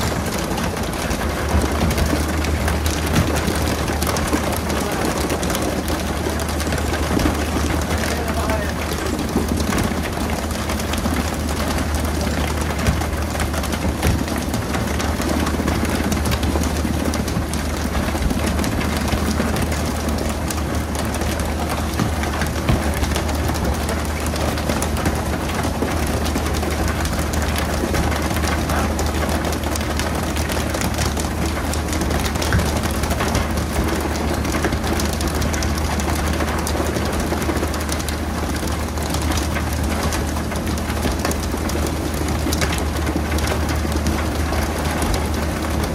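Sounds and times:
broad rushing noise: 0.0s - 30.2s
boat engine humming: 0.0s - 45.9s.

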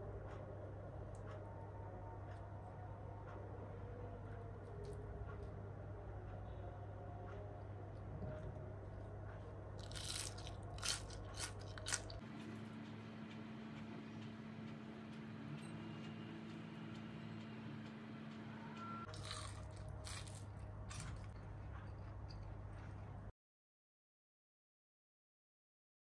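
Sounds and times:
steady low hum: 0.0s - 23.3s
fried potato sticks crunching: 9.8s - 12.2s, 19.1s - 23.0s.

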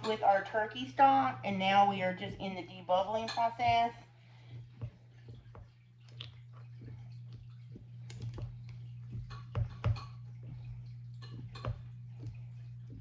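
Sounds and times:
steady low hum: 0.0s - 13.0s
plastic stick tapping glass jars: 7.2s - 13.0s.

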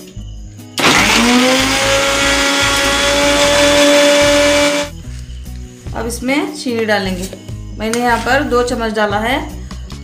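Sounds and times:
mixer grinder blending ice: 0.8s - 4.9s.

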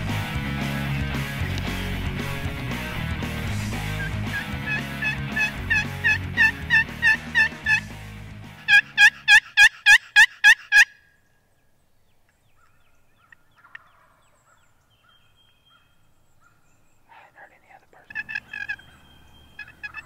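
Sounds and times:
turkey box call yelps: 3.9s - 7.8s, 8.7s - 11.0s, 12.6s - 16.6s, 18.1s - 20.0s
faint bird chirps: 11.0s - 20.0s
faint music: 17.1s - 20.0s.

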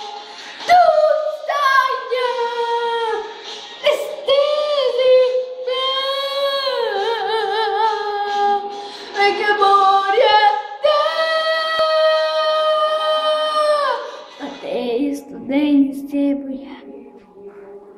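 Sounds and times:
girl singing unaccompanied: 0.0s - 17.9s.

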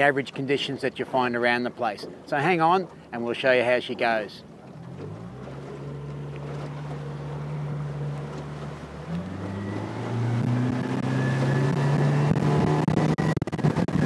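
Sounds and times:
outboard engine throttling up: 4.1s - 14.0s.

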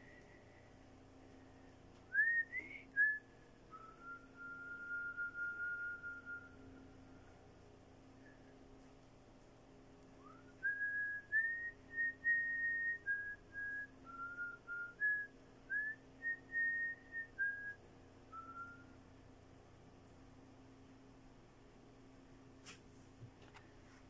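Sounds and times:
person whistling a slow tune: 2.1s - 6.7s, 10.2s - 19.0s.

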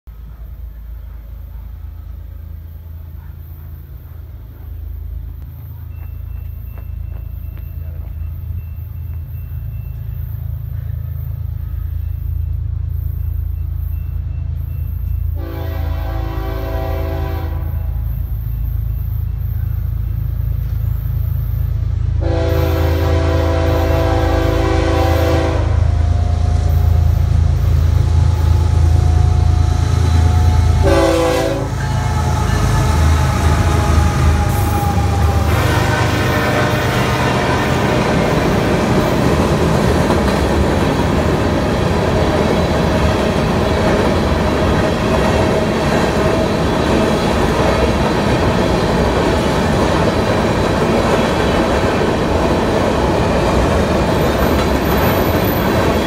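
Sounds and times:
freight train rumble: 0.0s - 56.0s
locomotive air horn: 15.4s - 18.1s, 22.2s - 38.7s.

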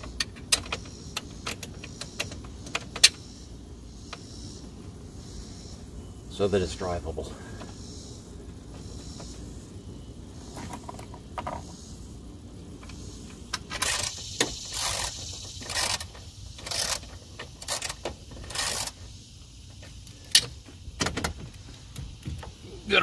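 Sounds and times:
tool and trim parts rattling: 13.6s - 19.0s.

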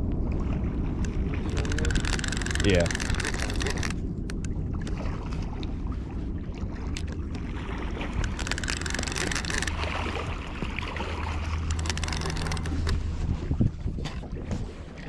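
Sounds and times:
wind rumble on microphone: 0.0s - 15.0s
fish splashing: 0.5s - 5.6s, 6.5s - 13.6s
fishing reel clicking: 1.0s - 4.5s, 8.2s - 9.8s, 11.6s - 13.0s.

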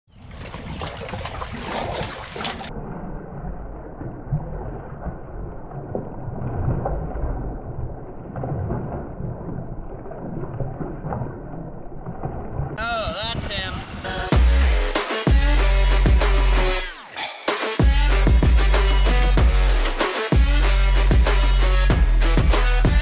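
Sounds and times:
water splashing from thrashing fish: 0.2s - 2.7s
low rumble: 2.7s - 16.7s.

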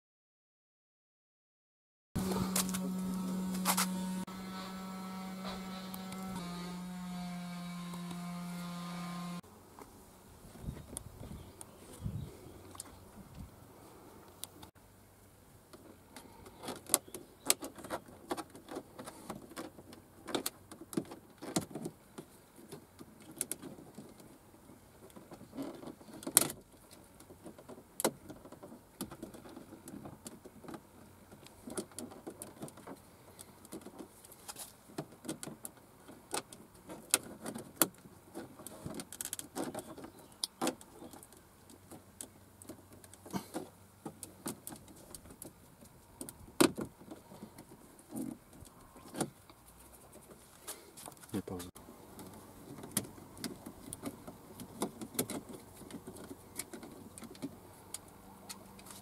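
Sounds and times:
plastic clicks and scraping: 15.7s - 24.4s, 25.0s - 51.3s, 52.2s - 59.0s.

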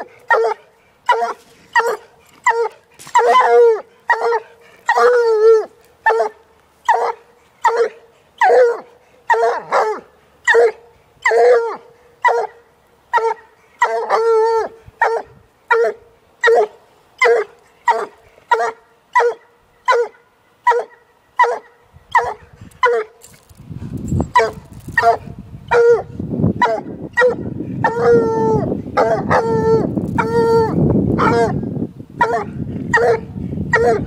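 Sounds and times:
dog barking: 0.3s - 5.2s, 6.1s - 14.2s, 15.0s - 23.1s, 24.4s - 28.2s, 29.0s - 29.6s, 31.2s - 31.6s, 32.2s - 34.0s.

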